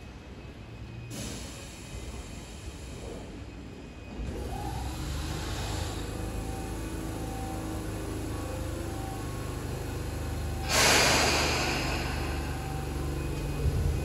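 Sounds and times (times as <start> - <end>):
electric train humming: 0.0 - 14.0
compressed air hissing: 10.6 - 12.5.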